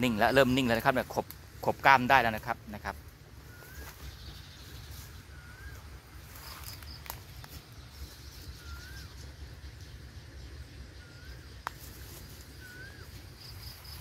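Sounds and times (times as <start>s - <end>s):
low steady rumble: 0.0s - 14.0s
bird whistling: 3.4s - 4.5s, 5.2s - 6.8s, 8.3s - 9.4s, 10.9s - 11.6s, 12.5s - 14.0s.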